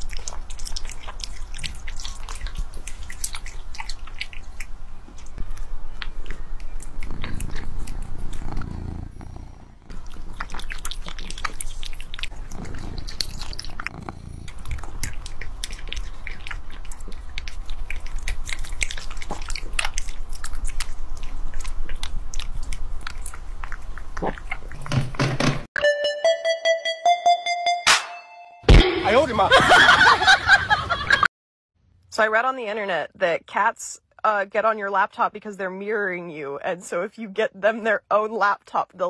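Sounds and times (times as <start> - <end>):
cat chewing: 0.0 - 24.9.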